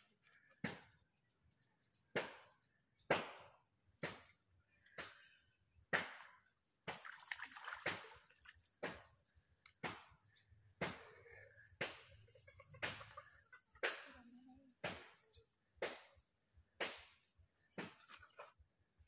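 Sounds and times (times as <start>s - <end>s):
water splashing: 6.0s - 9.1s.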